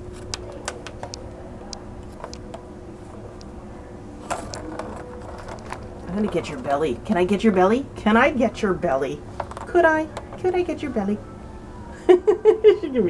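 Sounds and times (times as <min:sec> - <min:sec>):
low background hum: 0:00.0 - 0:13.0
plastic toy clatter: 0:04.3 - 0:06.5.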